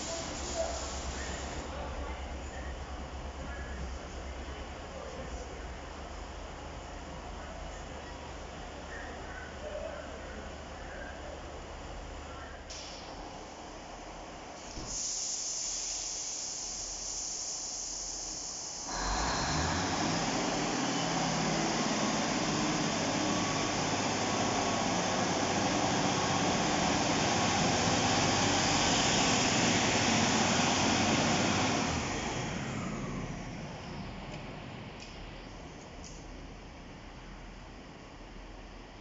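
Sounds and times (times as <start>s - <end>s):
steady hiss: 0.0s - 1.8s, 12.6s - 19.5s
diesel engine accelerating: 18.8s - 35.4s.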